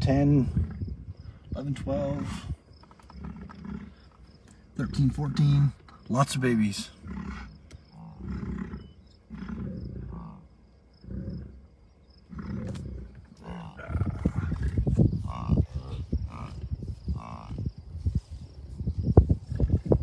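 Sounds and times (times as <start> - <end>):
wind buffeting microphone: 0.0 - 3.6, 12.6 - 20.0
bison grunting: 0.0 - 6.0, 6.8 - 17.7.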